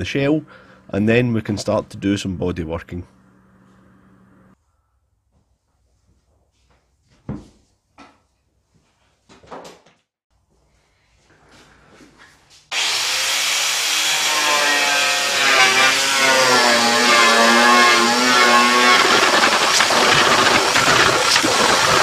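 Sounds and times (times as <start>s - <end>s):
angle grinder stripping paint: 12.7s - 22.0s.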